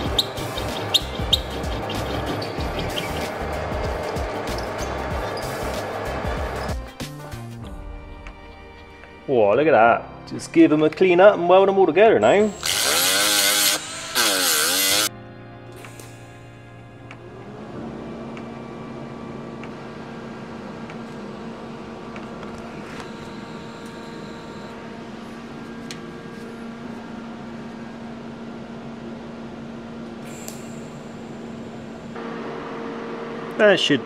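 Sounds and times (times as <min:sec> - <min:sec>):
arc welder humming: 0:00.0 - 0:06.9, 0:12.2 - 0:34.0.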